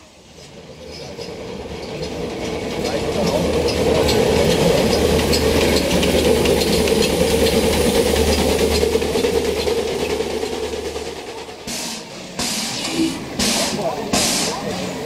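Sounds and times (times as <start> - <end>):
steam locomotive rumbling past: 0.0 - 15.0
steam hissing: 3.3 - 15.0.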